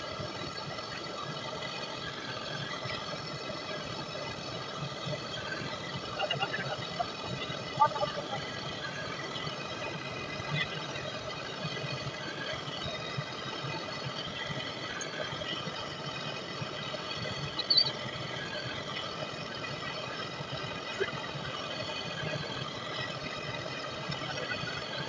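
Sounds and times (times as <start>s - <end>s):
sharp squeak: 17.6s - 17.9s.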